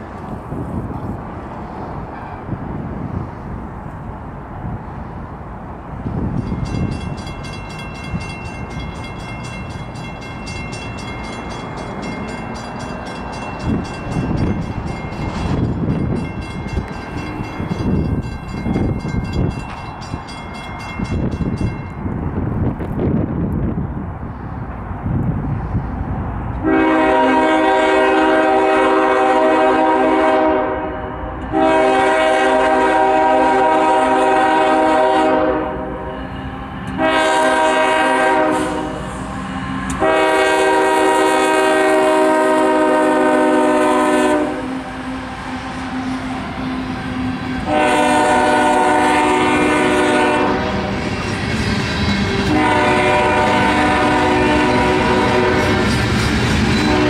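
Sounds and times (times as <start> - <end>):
passing train rumble: 0.0 - 57.0
locomotive air horn blasts: 26.6 - 51.0, 52.4 - 55.9.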